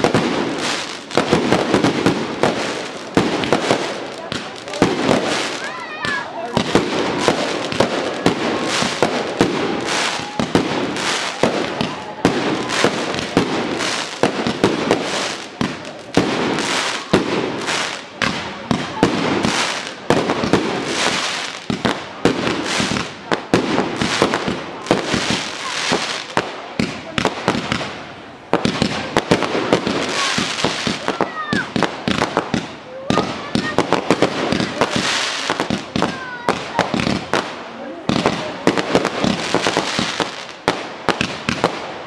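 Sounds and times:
fireworks bursting and crackling: 0:00.0 - 0:42.0.

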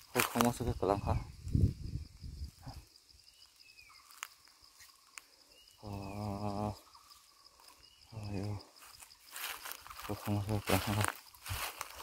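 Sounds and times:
insects chirping: 0:00.0 - 0:12.0
man's voice: 0:10.1 - 0:11.1.

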